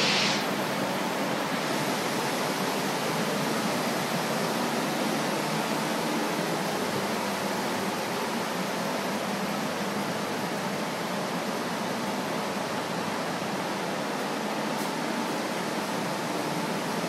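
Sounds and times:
air mover fan rushing: 0:00.0 - 0:12.2.

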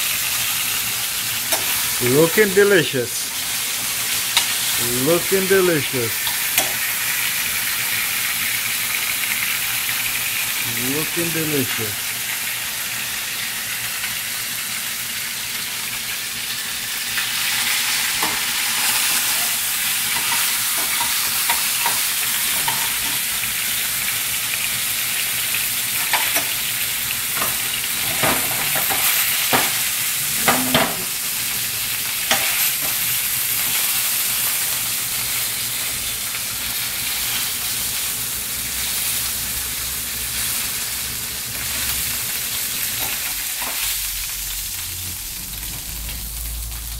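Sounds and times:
fish sizzling in hot oil: 0:00.0 - 0:46.9
metal utensils clicking on pan: 0:19.4 - 0:23.2.

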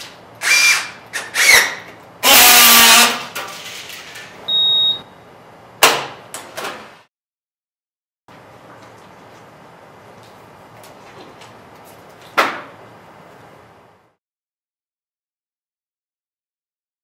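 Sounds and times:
loud buzz: 0:02.2 - 0:03.4
short high beep: 0:04.5 - 0:05.1.

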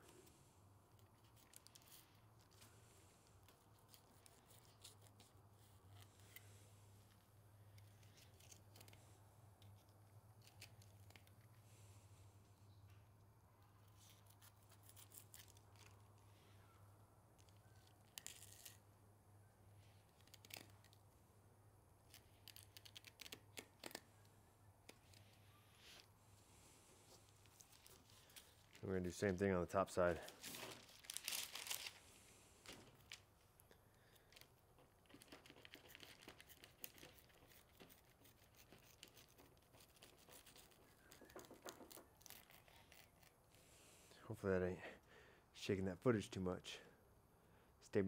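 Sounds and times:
paper rustling: 0:29.9 - 0:33.3.

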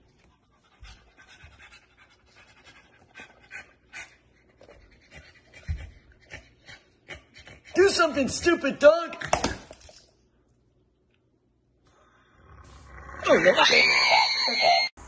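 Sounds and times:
dog panting: 0:00.0 - 0:08.6.

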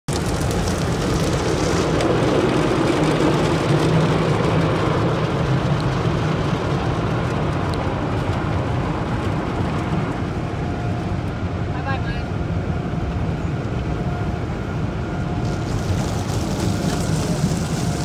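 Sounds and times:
car wash machinery rumbling: 0:00.1 - 0:18.0
water spraying on windshield: 0:15.4 - 0:18.0.

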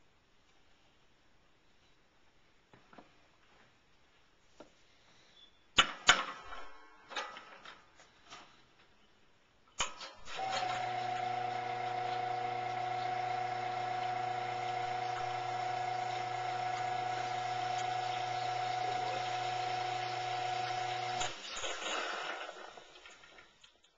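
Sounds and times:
espresso machine pump humming: 0:10.4 - 0:21.3.

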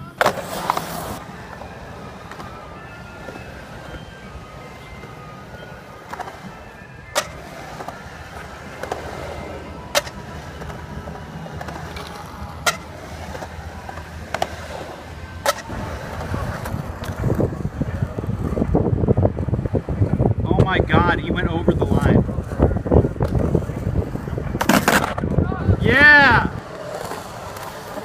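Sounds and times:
skateboard clacks: 0:00.0 - 0:20.7, 0:22.4 - 0:25.4, 0:26.5 - 0:28.0
skateboard wheels rolling on concrete: 0:00.0 - 0:28.0
wind buffeting microphone: 0:13.6 - 0:27.7.

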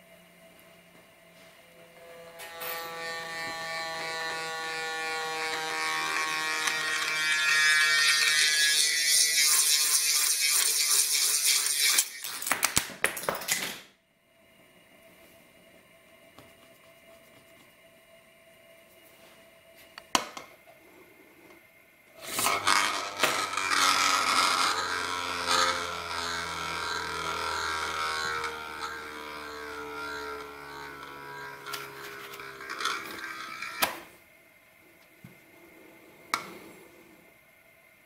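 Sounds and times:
metal spinning top whirring: 0:02.0 - 0:12.8, 0:22.2 - 0:34.2.

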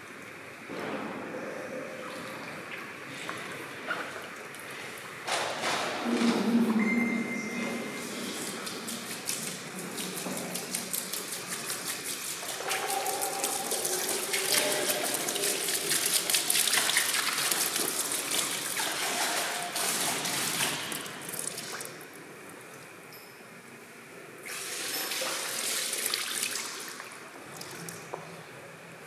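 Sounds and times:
liquid pouring and splashing: 0:08.2 - 0:22.8, 0:24.4 - 0:28.1.

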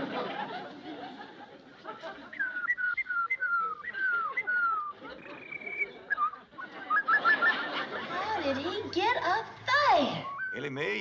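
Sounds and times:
man whistling a bird call: 0:02.4 - 0:07.6, 0:10.2 - 0:10.7.

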